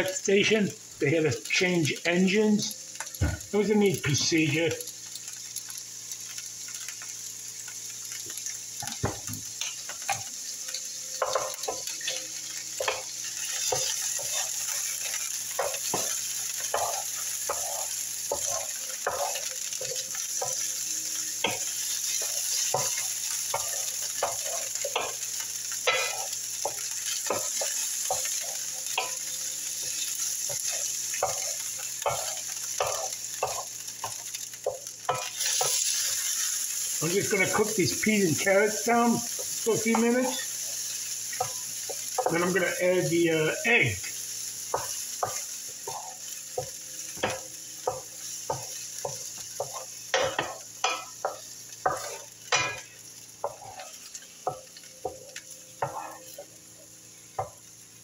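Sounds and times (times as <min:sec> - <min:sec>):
vegetables sizzling in a skillet: 0:00.0 - 0:58.0
spatula scraping a pan: 0:12.8 - 0:20.7, 0:44.7 - 0:52.8, 0:55.8 - 0:56.5.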